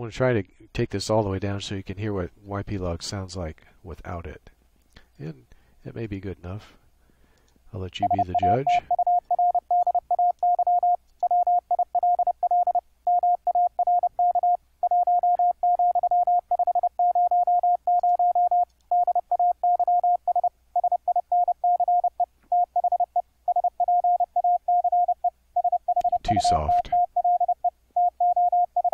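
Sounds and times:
morse code tone beeping: 0:08.0 - 0:28.9.

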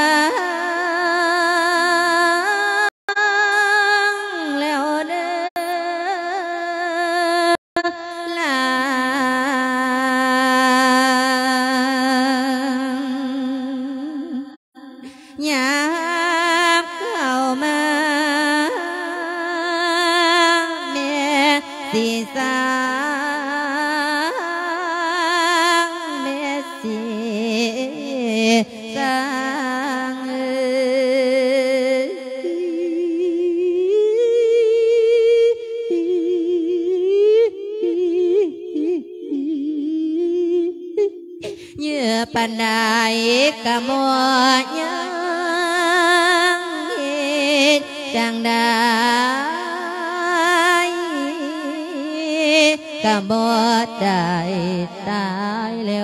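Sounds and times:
person chanting with heavy vibrato: 0:07.9 - 0:56.0.

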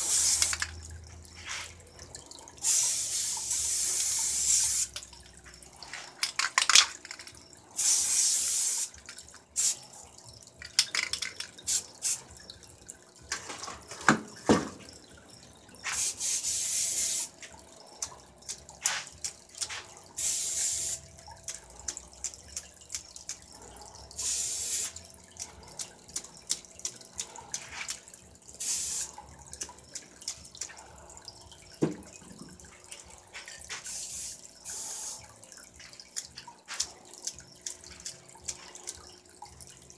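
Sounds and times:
spray paint can hissing: 0:00.0 - 0:00.8, 0:01.4 - 0:01.8, 0:02.6 - 0:05.0, 0:07.8 - 0:09.0, 0:09.6 - 0:09.9, 0:10.8 - 0:12.3, 0:15.8 - 0:17.4, 0:18.8 - 0:21.1, 0:24.2 - 0:25.0, 0:28.6 - 0:29.2, 0:33.7 - 0:35.2
spray can clicks and rattles: 0:00.0 - 0:01.8, 0:02.6 - 0:05.1, 0:05.8 - 0:09.8, 0:10.6 - 0:12.3, 0:15.8 - 0:23.4, 0:24.2 - 0:30.8, 0:33.3 - 0:35.2, 0:35.8 - 0:39.0.

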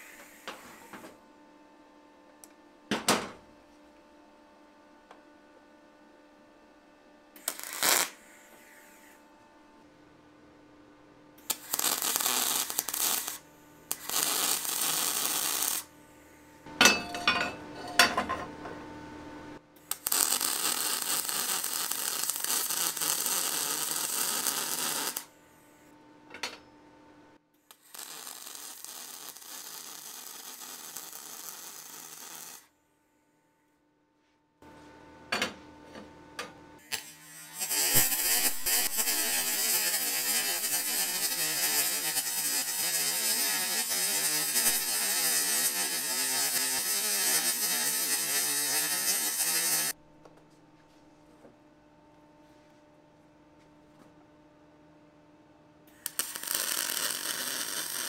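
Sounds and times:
welding arc hissing and crackling: 0:00.0 - 0:01.2, 0:07.4 - 0:08.9, 0:11.4 - 0:15.9, 0:19.8 - 0:25.3, 0:27.7 - 0:32.7, 0:36.8 - 0:50.0, 0:55.9 - 0:58.0
steady electrical hum: 0:00.0 - 0:58.0.

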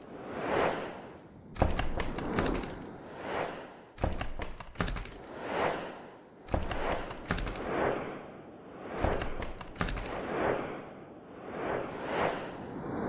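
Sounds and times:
crackling clicks: 0:01.6 - 0:02.9, 0:04.0 - 0:05.3, 0:06.5 - 0:07.7, 0:09.0 - 0:10.3.

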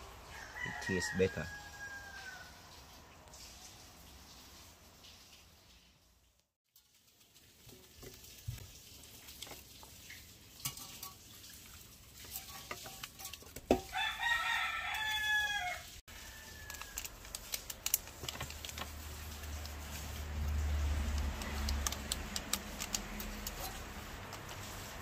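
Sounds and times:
rooster crowing: 0:00.2 - 0:02.7, 0:13.9 - 0:17.1
fish handled in metal pan: 0:07.0 - 0:15.2, 0:16.4 - 0:25.0.

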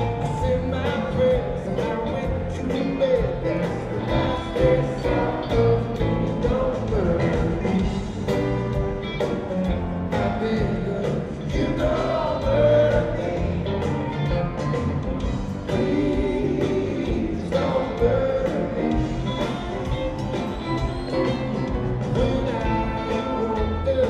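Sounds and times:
person singing: 0:00.0 - 0:08.6, 0:15.6 - 0:24.0
bass: 0:00.0 - 0:24.0
drums: 0:00.0 - 0:24.0
electric guitars: 0:00.0 - 0:24.0
keyboards: 0:00.0 - 0:24.0.

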